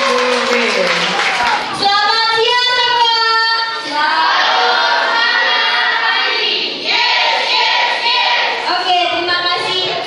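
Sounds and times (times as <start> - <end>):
children singing: 3.9 - 8.7.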